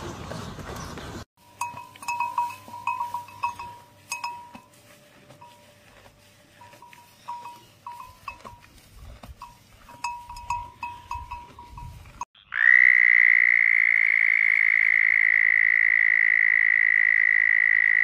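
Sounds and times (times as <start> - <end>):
calf chewing grass: 0.3 - 12.3.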